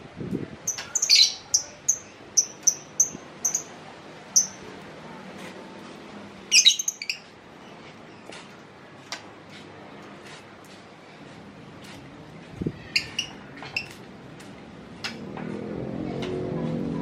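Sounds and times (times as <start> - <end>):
bird singing: 0.7 - 3.7, 6.5 - 7.3.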